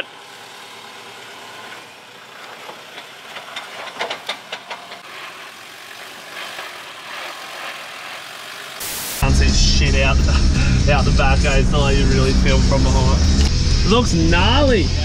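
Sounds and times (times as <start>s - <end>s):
sharp clicks and knocks: 2.4s - 5.1s
engine running at low revs: 3.3s - 15.0s.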